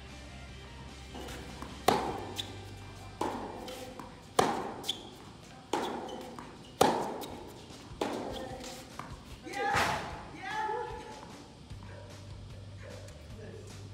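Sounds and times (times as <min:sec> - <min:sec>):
tennis ball bouncing: 0:01.0 - 0:10.2
tennis racket hitting ball: 0:01.1 - 0:10.2.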